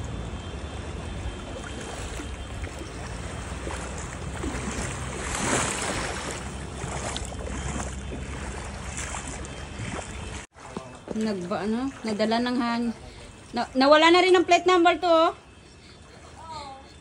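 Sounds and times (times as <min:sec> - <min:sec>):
floodwater sloshing: 0:00.0 - 0:17.0.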